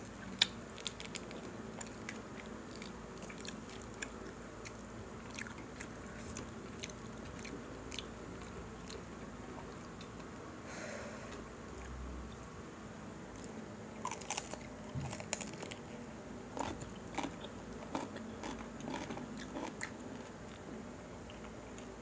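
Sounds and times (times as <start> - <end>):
mouth chewing sounds: 0.2 - 10.3, 16.6 - 21.9.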